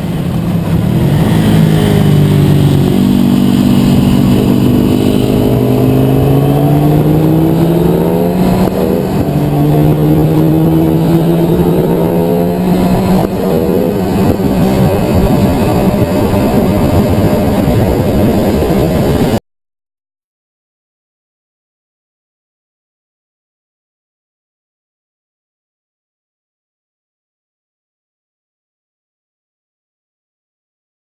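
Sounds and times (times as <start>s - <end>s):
motorcycle engine revving: 0.0s - 19.4s.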